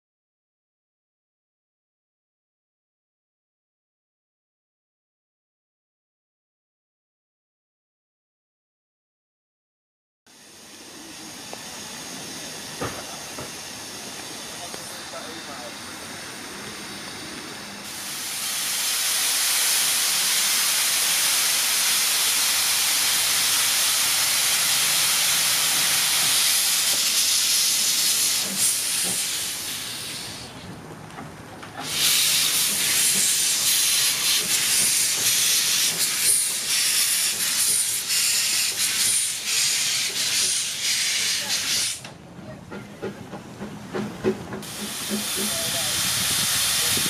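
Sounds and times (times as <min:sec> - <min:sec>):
steam locomotive hissing steam: 0:10.3 - 0:30.7, 0:31.7 - 0:47.0.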